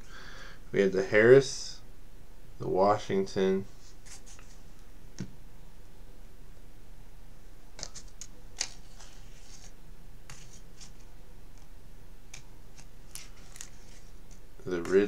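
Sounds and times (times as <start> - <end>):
cards scraping and clicking: 7.8 - 11.1, 12.3 - 15.0.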